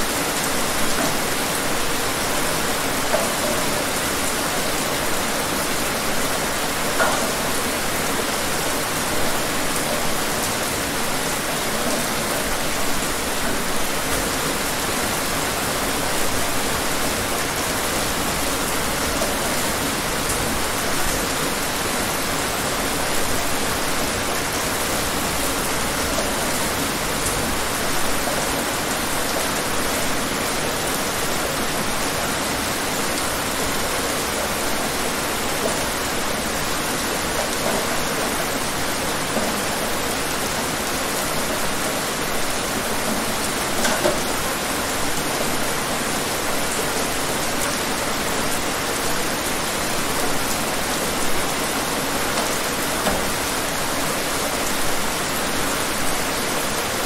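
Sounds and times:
steady rain falling: 0.0s - 57.0s.

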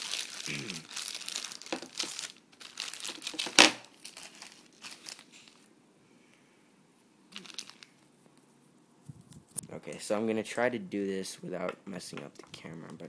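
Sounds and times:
plastic packaging crinkling: 0.0s - 5.7s, 7.3s - 8.1s.

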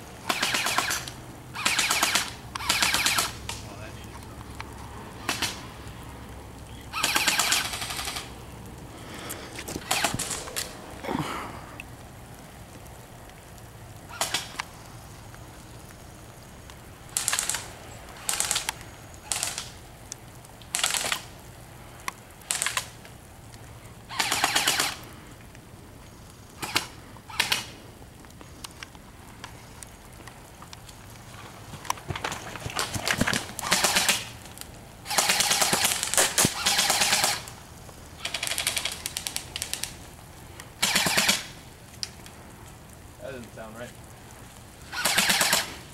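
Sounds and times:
airsoft rifle bursts: 0.3s - 3.4s, 7.0s - 8.3s, 9.8s - 10.7s, 17.2s - 18.7s, 19.3s - 19.7s, 24.1s - 25.0s, 33.2s - 34.4s, 35.0s - 37.5s, 40.8s - 41.5s, 44.9s - 45.8s.

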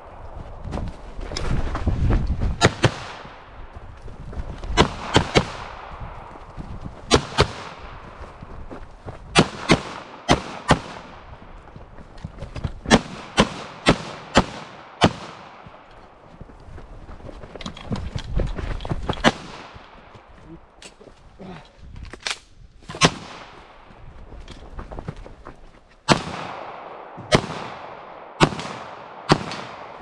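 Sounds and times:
pistol shots with echo: 4.8s - 6.1s, 9.4s - 11.2s, 12.9s - 15.7s, 26.1s - 30.0s.

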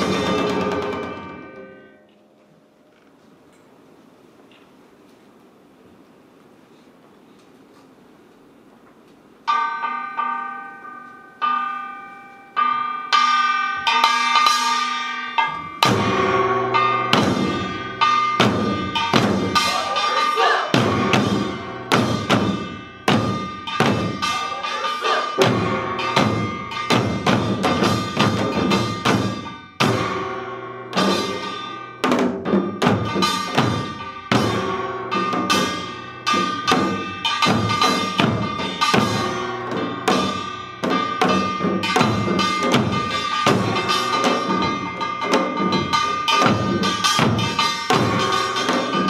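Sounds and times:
hourglass drums fast rhythm: 0.0s - 1.6s, 12.6s - 49.0s.

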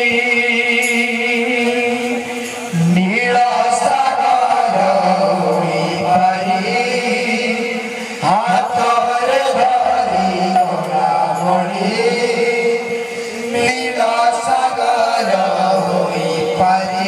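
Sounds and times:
men singing a chanted melody: 0.0s - 17.0s.

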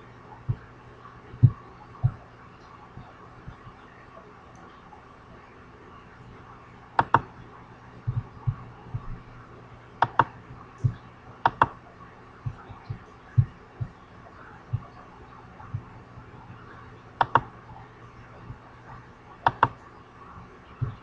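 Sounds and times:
steady low hum: 0.0s - 21.0s
mouse clicks: 7.0s - 7.3s, 10.0s - 11.8s, 17.2s - 17.5s, 19.4s - 19.8s.

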